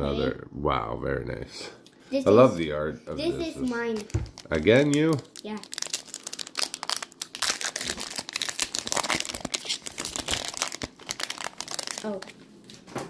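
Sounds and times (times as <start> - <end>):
foil wrapper crinkling and tearing: 3.6 - 12.4.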